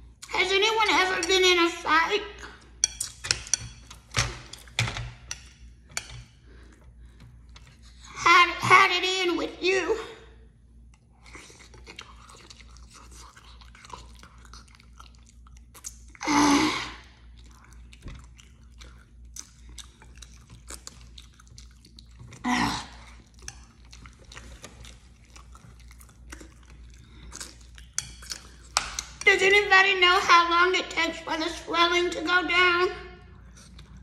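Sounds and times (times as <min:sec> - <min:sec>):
person chewing food: 0:10.7 - 0:16.2, 0:17.0 - 0:29.3, 0:33.3 - 0:34.0.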